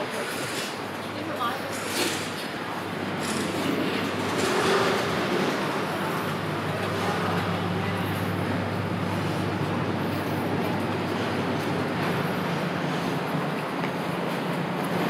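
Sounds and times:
street traffic: 0.0s - 15.0s
vehicle engine humming: 0.7s - 15.0s.

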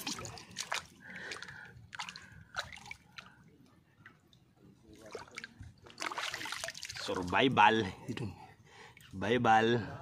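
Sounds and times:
water drips and splashes: 0.0s - 7.6s.

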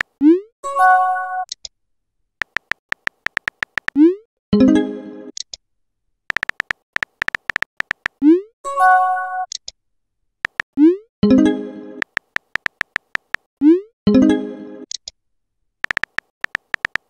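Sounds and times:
keyboard tap clicks: 2.4s - 4.0s, 6.3s - 8.2s, 10.4s - 10.7s, 12.0s - 13.5s, 15.8s - 17.0s.

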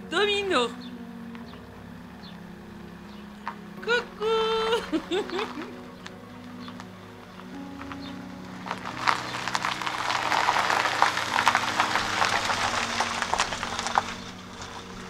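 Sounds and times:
tyres crackling over grit: 3.1s - 15.0s.

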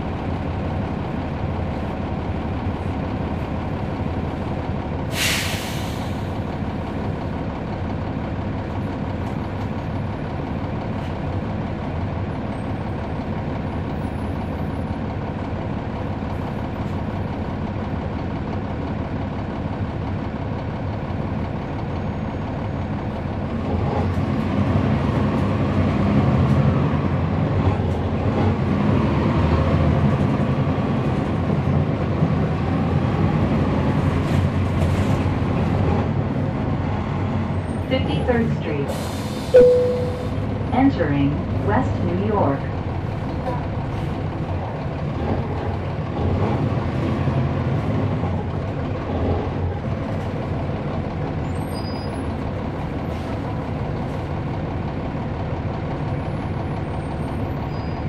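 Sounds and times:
bus diesel engine running: 0.0s - 58.0s
air brakes hissing: 5.1s - 6.4s, 38.9s - 40.5s.

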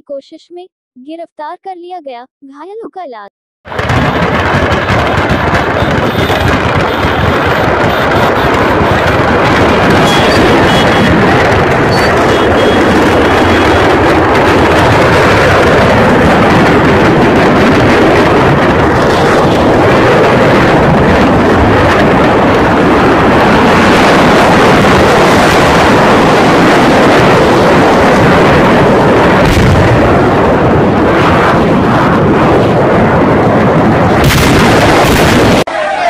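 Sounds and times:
heavy bang: 3.7s - 22.0s, 29.4s - 30.4s
firecrackers exploding: 3.7s - 31.8s, 34.2s - 35.7s.

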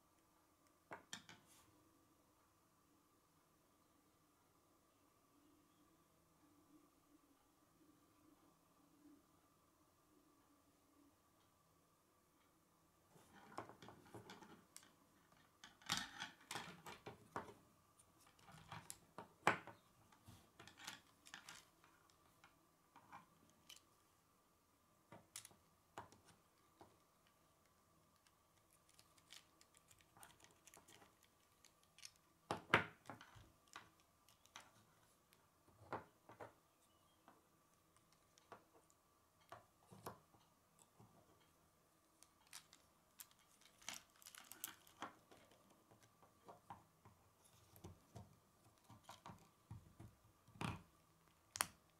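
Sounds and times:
plastic pieces clicking together: 28.2s - 35.4s, 42.2s - 45.6s.

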